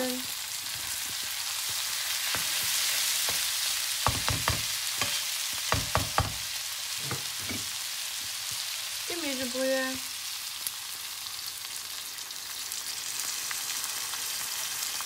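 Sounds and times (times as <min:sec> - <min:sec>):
vegetables sizzling in a frying pan: 0:00.0 - 0:15.0
spatula knocking against a pan: 0:04.0 - 0:07.7.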